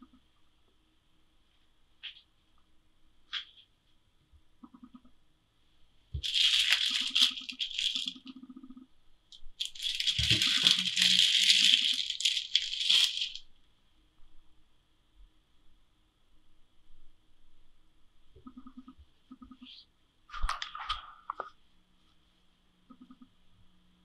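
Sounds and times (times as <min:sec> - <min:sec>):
plastic wrapping crinkling: 0:06.2 - 0:08.3, 0:09.6 - 0:13.5.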